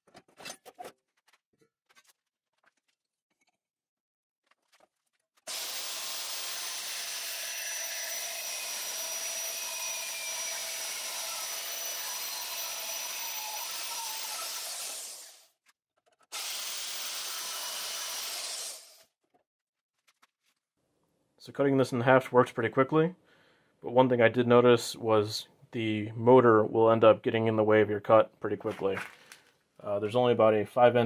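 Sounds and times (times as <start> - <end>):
band saw cutting steel: 5.5 - 15.5, 16.4 - 19.1.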